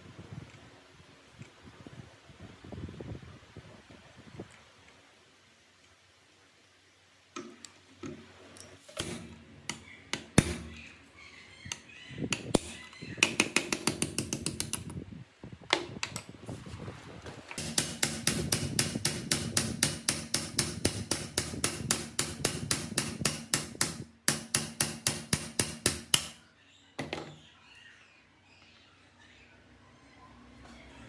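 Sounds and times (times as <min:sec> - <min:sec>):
hammer striking metal shaft: 0:17.6 - 0:26.4.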